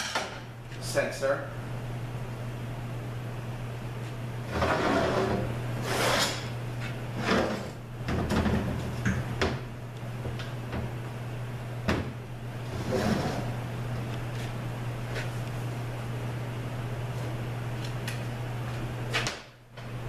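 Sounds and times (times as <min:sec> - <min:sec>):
transmission scraping on metal workbench: 0:04.5 - 0:06.5, 0:12.7 - 0:13.6.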